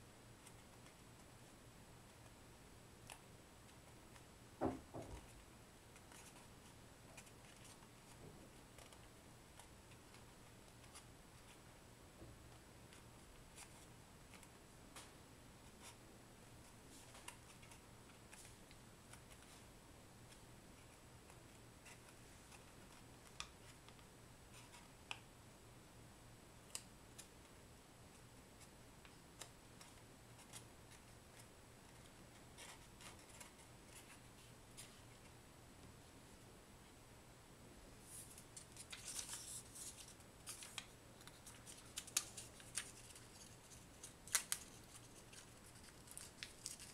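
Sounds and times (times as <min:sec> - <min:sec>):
low steady hum: 0:00.0 - 0:46.9
paper crinkling and clicking: 0:05.0 - 0:11.6, 0:38.3 - 0:46.9.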